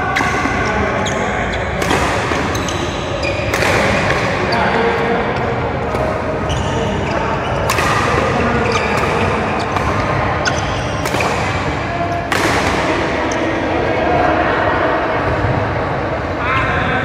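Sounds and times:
rackets smacking shuttlecock: 1.7s - 5.0s, 7.6s - 13.4s.

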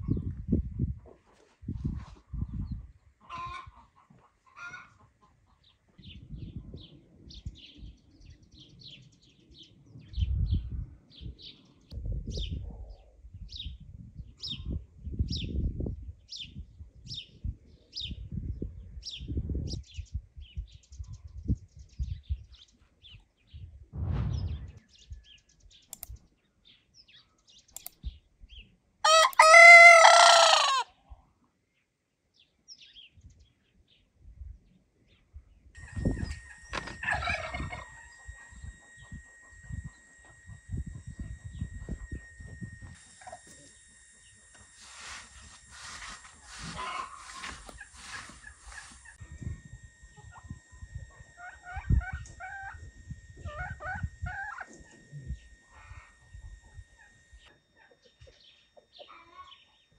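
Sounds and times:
rooster crowing: 29.0s - 30.9s
small bird chirping: 35.8s - 59.9s.

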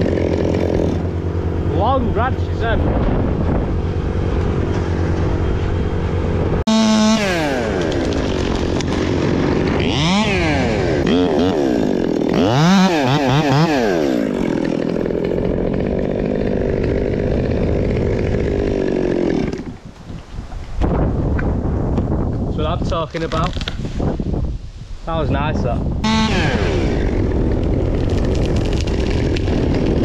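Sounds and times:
chainsaw revving and cutting wood: 0.0s - 2.6s, 6.6s - 19.9s, 26.0s - 30.0s.

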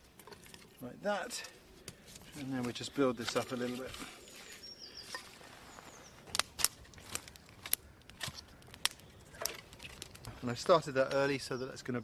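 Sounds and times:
campfire crackling: 0.0s - 12.0s
fire popping: 0.0s - 12.0s.

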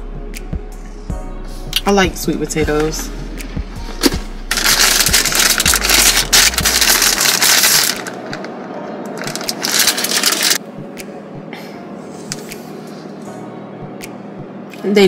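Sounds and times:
plastic snack bag crinkling: 4.5s - 10.6s.

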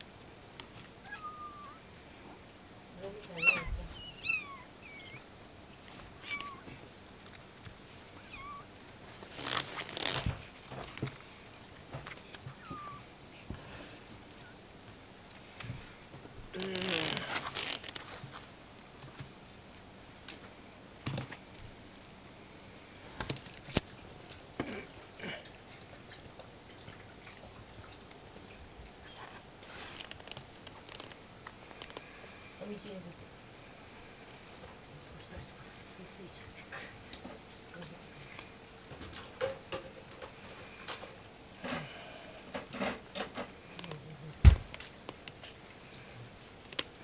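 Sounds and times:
soft rustles on blanket: 9.0s - 14.1s, 29.3s - 31.2s
soft clicks and rustles: 14.4s - 19.4s, 25.6s - 32.1s.

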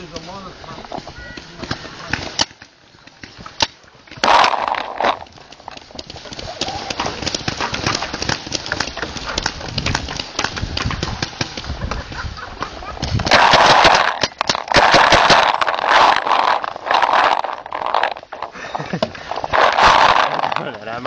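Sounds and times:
paintball markers firing: 1.6s - 12.0s, 13.0s - 18.5s.

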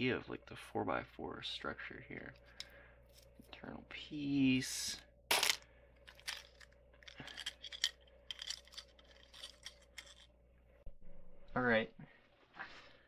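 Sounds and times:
plastic pieces clicking: 5.3s - 10.3s.

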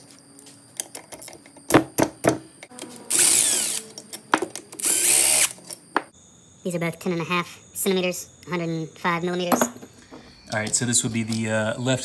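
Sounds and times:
cordless power driver spinning: 3.0s - 3.9s, 4.8s - 5.6s.

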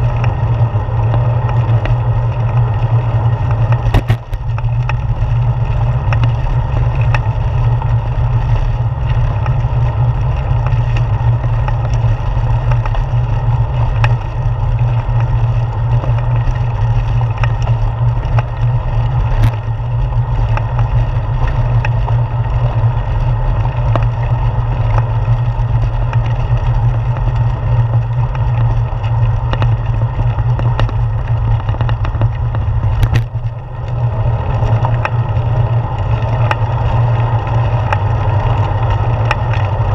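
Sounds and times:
bicycle rolling over bricks: 0.0s - 39.9s.

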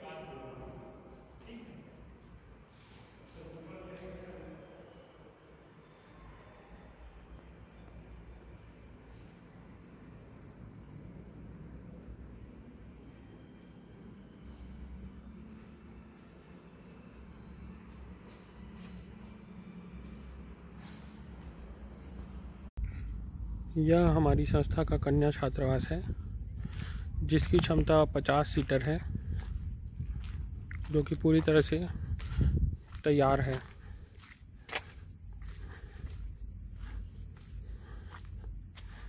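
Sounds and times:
crickets trilling: 0.0s - 39.0s.

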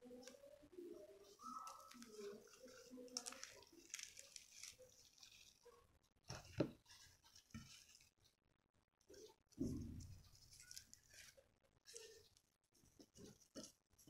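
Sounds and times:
flaky bread tearing and crackling: 1.2s - 5.8s, 9.1s - 14.0s.

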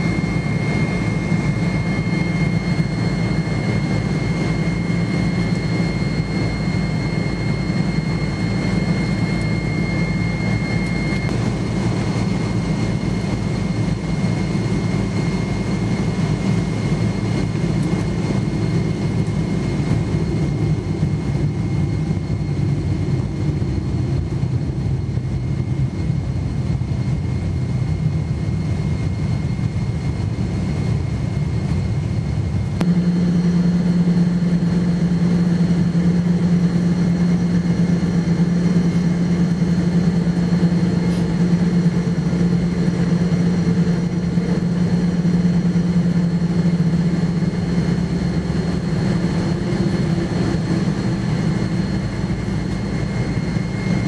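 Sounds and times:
jet engine rumble in cabin: 0.0s - 54.0s.

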